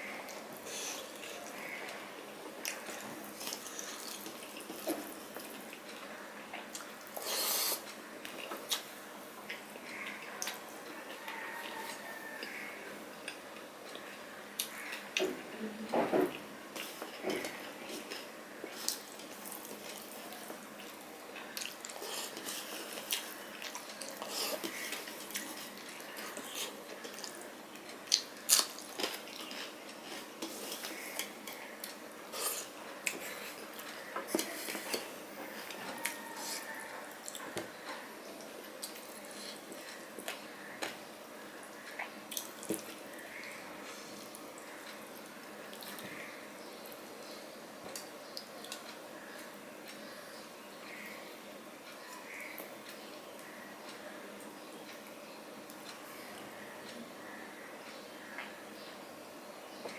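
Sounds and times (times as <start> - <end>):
chewing: 2.6 - 15.3, 16.8 - 41.0.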